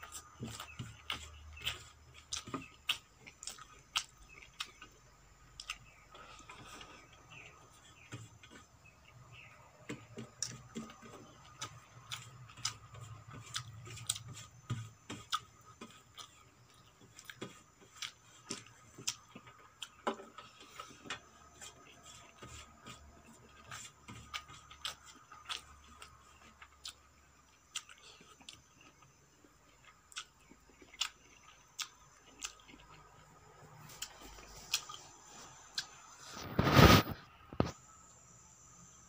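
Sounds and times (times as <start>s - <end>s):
chewing clicks and smacks: 0.1s - 6.6s, 23.6s - 33.3s.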